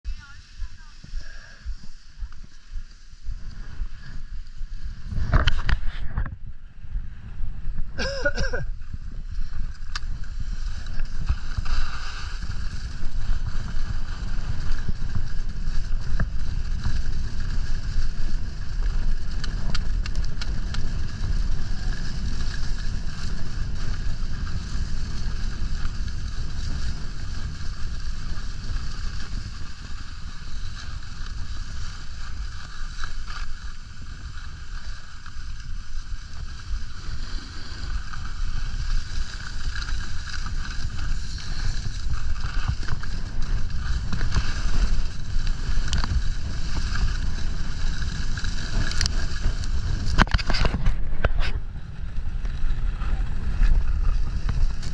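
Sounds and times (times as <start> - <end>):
wind buffeting microphone: 0.0 - 54.9
skis hissing over packed snow: 0.1 - 6.0, 7.8 - 50.7, 52.0 - 54.9.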